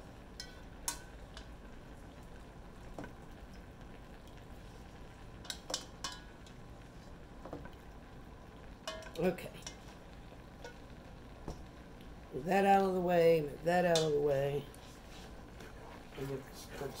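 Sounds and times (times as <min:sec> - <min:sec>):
utensils clinking on metal pots: 0:05.4 - 0:06.3, 0:08.8 - 0:09.8.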